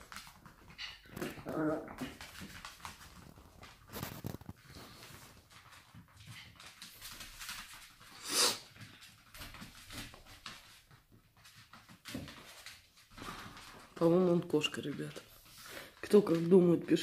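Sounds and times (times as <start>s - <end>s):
sharp puff of noise: 8.2s - 8.6s.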